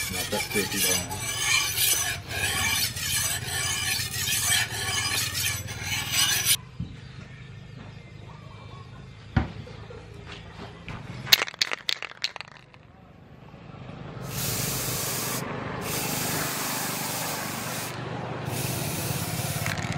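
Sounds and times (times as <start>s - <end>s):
blade scraping on a whetstone: 0.0s - 6.6s.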